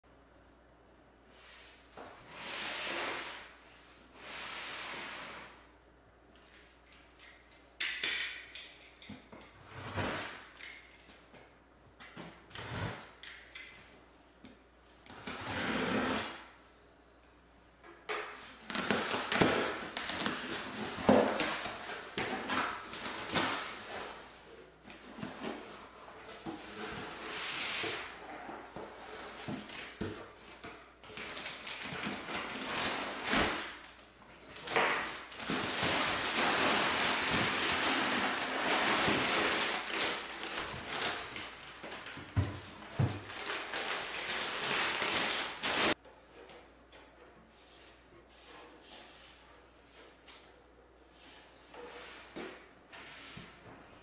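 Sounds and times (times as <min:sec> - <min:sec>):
cardboard and wrapping rustling: 0:18.4 - 0:46.0.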